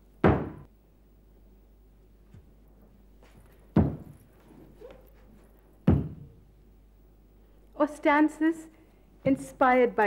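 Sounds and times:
bare feet stamping on wooden floor: 3.7 - 4.2, 5.9 - 6.2.

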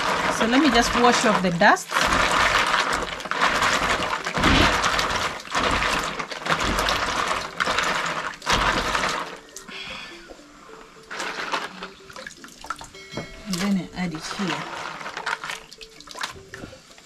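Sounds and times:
hands sloshing food in water: 0.0 - 9.6.

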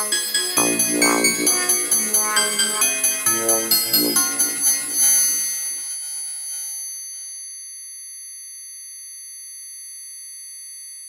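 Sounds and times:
synthesizer tones: 0.6 - 5.9.

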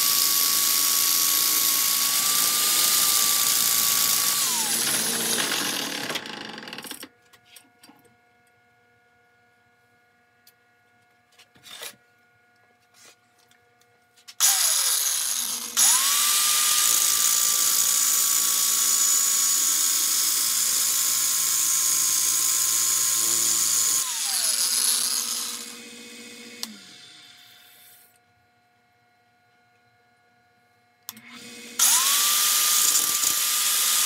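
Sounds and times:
grinder motor whine: 0.0 - 7.0, 14.4 - 28.0, 31.1 - 34.0.

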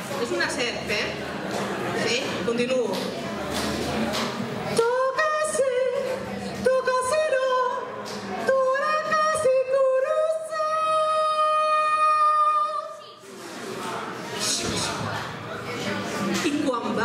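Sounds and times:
woman singing into a microphone: 4.8 - 13.0.

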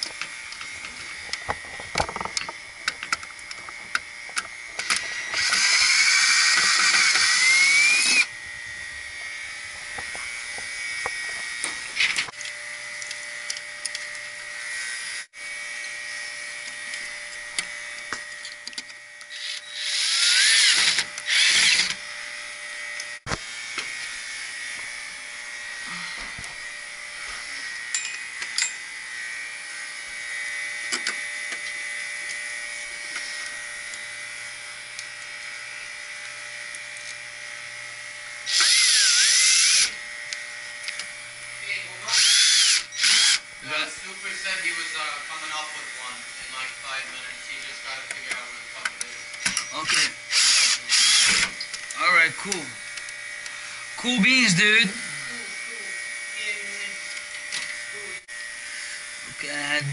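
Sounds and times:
cordless screwdriver running: 0.5 - 23.2, 38.3 - 41.1, 42.0 - 43.7, 48.4 - 59.9.

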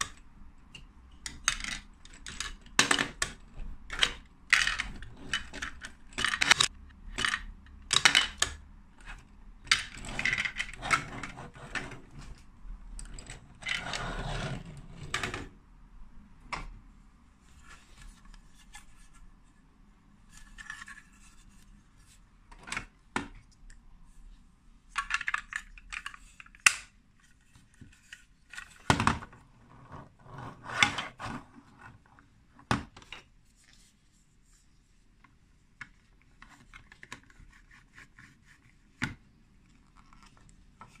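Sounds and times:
plastic toy bricks clicking: 1.2 - 8.6, 24.9 - 26.9
plastic scraping on plastic: 9.0 - 15.6, 27.6 - 32.1.

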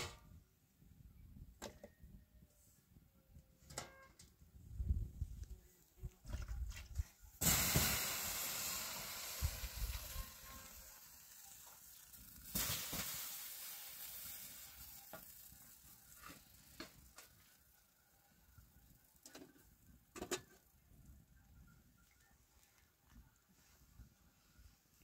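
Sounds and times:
sizzling hiss on hot surface: 7.4 - 19.7.

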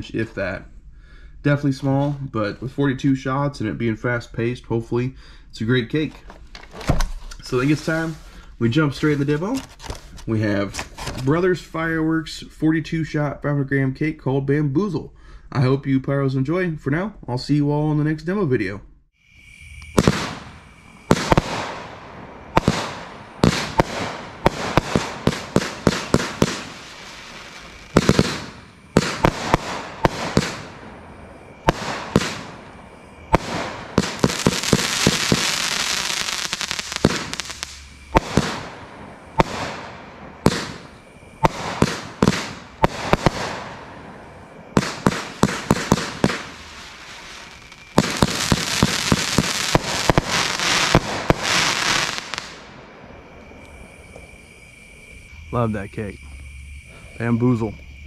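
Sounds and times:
fireworks hissing: 7.4 - 11.2, 19.2 - 56.0
fireworks shots bursting: 19.8 - 53.1.

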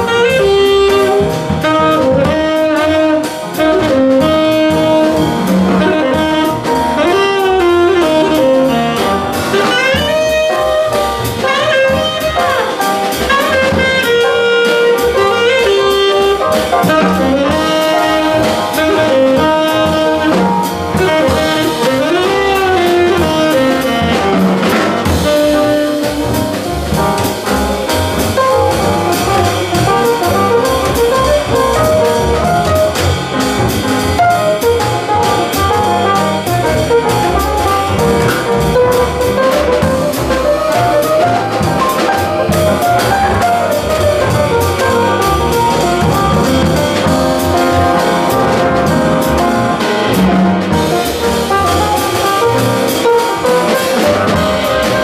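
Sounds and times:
acoustic piano: 0.0 - 55.0
drum kit with cymbals: 0.0 - 55.0
tenor saxophone melody: 0.0 - 55.0
upright double bass: 0.0 - 55.0.

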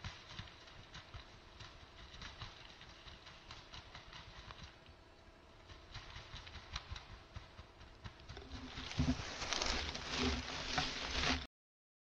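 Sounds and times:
dull thumps: 7.4 - 11.4
rustling in dry leaves: 8.2 - 11.5.

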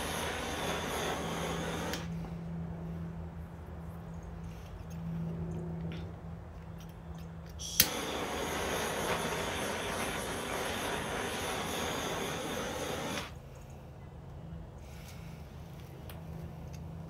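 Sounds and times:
torch flame hissing: 0.0 - 2.2, 7.6 - 13.4
gas torch igniter click: 0.5 - 2.1, 7.5 - 13.4.

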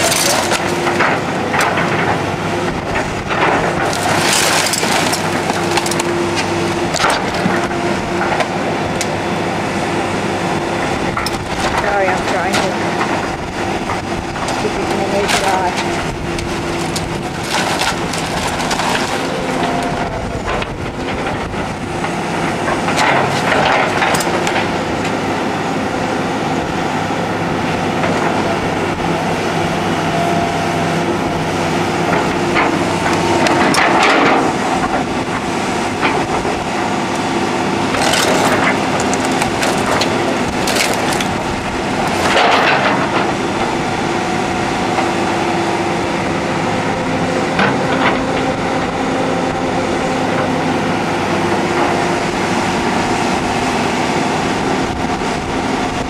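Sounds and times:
wood cracking and crunching: 0.0 - 9.2, 11.2 - 25.3, 32.0 - 48.8
diesel engine running: 0.0 - 56.0.

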